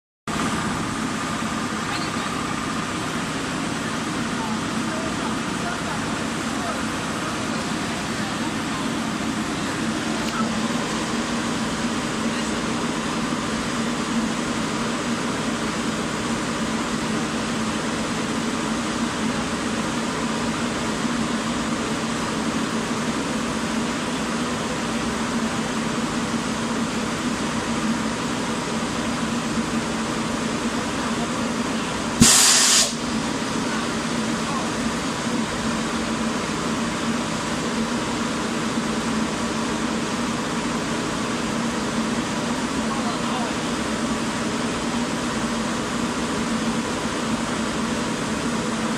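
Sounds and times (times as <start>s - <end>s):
loud sharp hiss: 32.1s - 34.1s
powder spray hiss: 32.2s - 33.2s.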